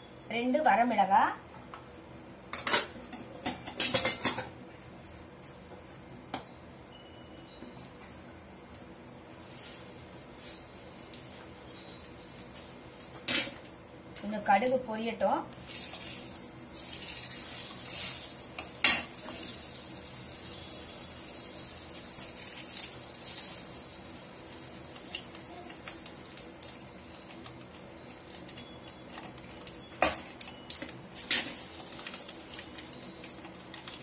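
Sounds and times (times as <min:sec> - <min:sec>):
spices sizzling in hot oil: 0:15.5 - 0:34.0.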